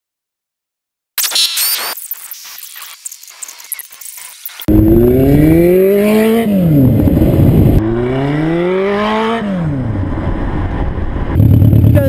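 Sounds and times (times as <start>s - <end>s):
motorcycle engine accelerating: 4.7s - 12.0s.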